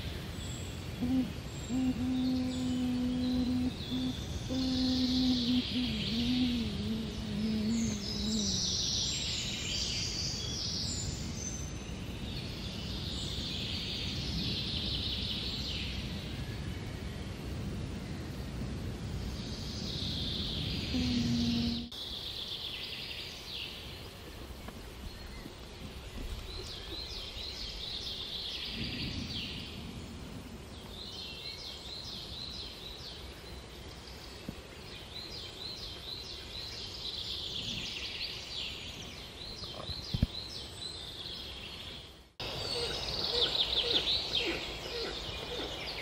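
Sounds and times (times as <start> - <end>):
songbirds singing: 0.0 - 46.0
faint low rumble: 1.0 - 8.9.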